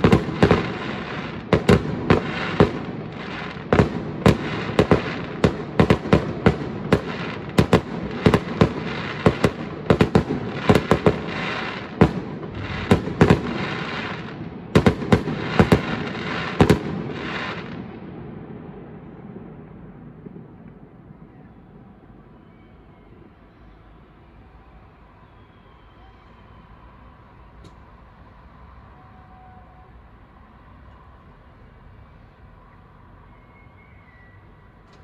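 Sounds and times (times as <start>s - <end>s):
crackling hiss: 0.0s - 18.0s.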